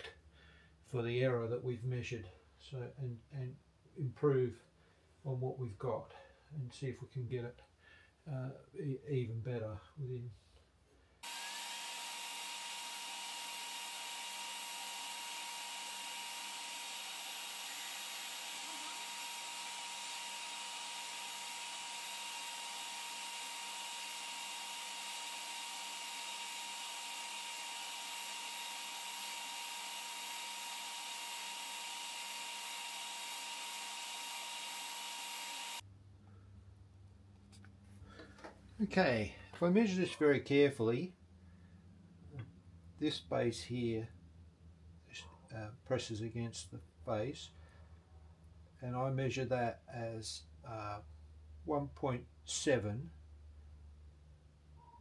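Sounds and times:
grinder whine: 0:11.2 - 0:35.8
surface grinder wheel hissing: 0:11.2 - 0:35.8.

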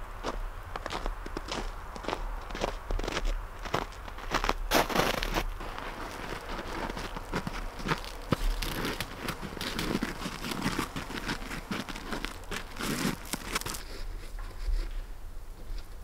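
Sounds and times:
plastic wrap crackling: 0:05.5 - 0:14.4.

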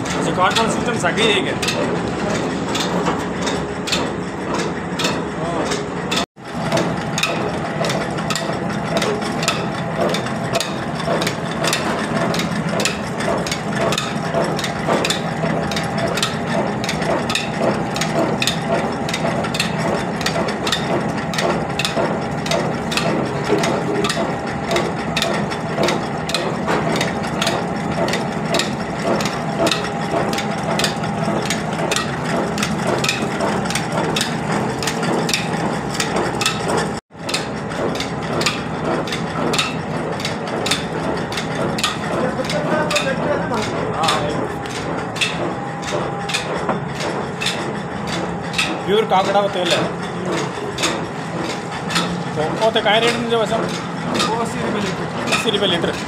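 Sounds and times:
machinery low hum: 0:00.0 - 0:56.0
mechanical clattering and knocking: 0:00.0 - 0:56.0.

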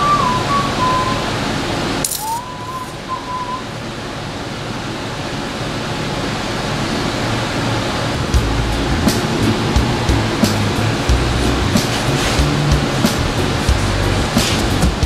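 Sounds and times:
person whistling: 0:00.0 - 0:01.4, 0:02.2 - 0:03.7
steady hiss: 0:00.7 - 0:15.0
sharp click: 0:02.0 - 0:02.5.

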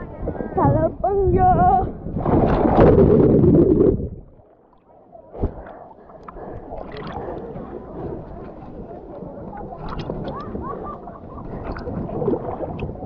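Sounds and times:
water sloshing and lapping: 0:00.0 - 0:13.0
rushing down water slide: 0:06.6 - 0:13.0.

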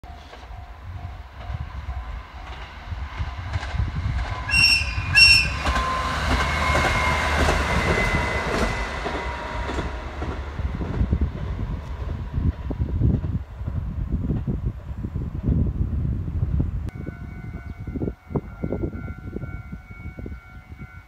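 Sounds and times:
train wheels rumbling: 0:00.0 - 0:21.0
train horn toots: 0:04.4 - 0:09.8, 0:16.9 - 0:21.0.

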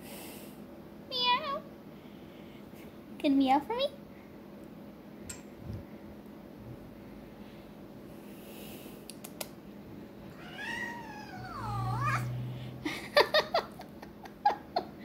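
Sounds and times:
cat meowing: 0:10.3 - 0:12.4.

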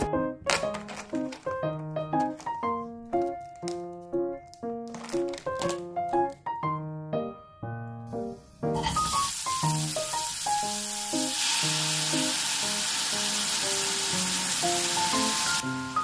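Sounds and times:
light piano background music: 0:00.0 - 0:16.0
onions sizzling in a frying pan: 0:08.8 - 0:16.0.

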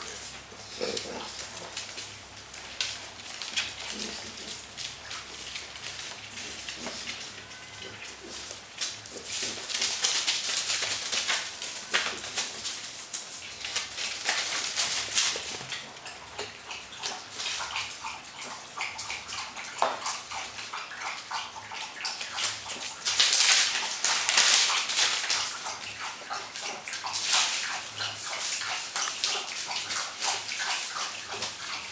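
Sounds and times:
paw clicks and scuffs: 0:00.0 - 0:07.4, 0:08.0 - 0:31.9
newspaper rustling and crinkling: 0:00.1 - 0:07.3, 0:08.3 - 0:15.7, 0:23.0 - 0:25.5.

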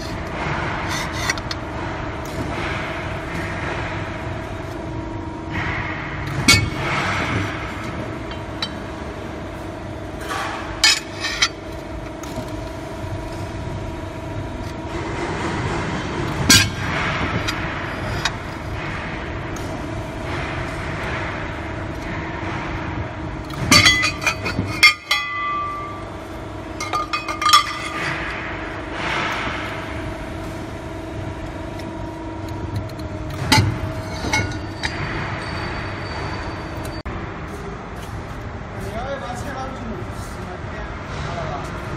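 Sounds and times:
metal plate clanking on tooling: 0:00.0 - 0:01.6, 0:05.5 - 0:09.2, 0:10.2 - 0:12.7, 0:14.6 - 0:22.2, 0:23.4 - 0:29.8, 0:31.7 - 0:37.0
hydraulic power unit humming: 0:00.0 - 0:41.9.

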